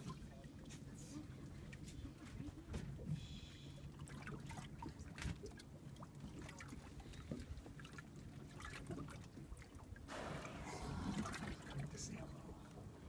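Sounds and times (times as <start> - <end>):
water lapping against boat hull: 0.0 - 13.0
steady low rumble: 10.1 - 13.0.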